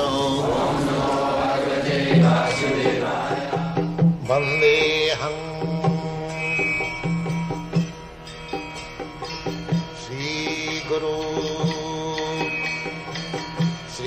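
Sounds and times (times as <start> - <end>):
voice chanting: 0.0 - 4.7
drum strokes: 0.1 - 6.2.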